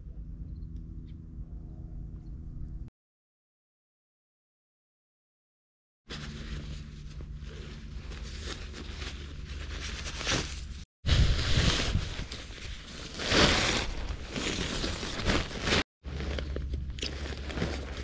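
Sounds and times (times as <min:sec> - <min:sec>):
ground sheet rustling and flapping: 0:06.1 - 0:16.6
stuff sack rustling: 0:06.1 - 0:18.0.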